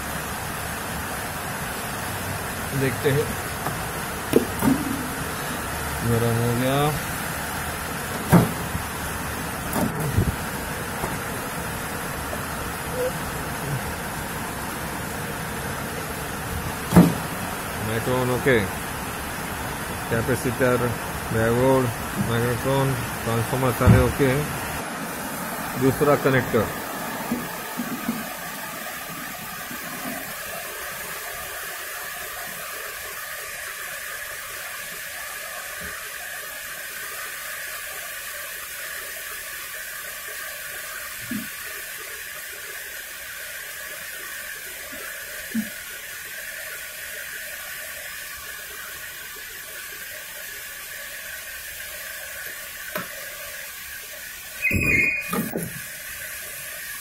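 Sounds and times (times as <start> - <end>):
louder knock: 16.9 - 17.3.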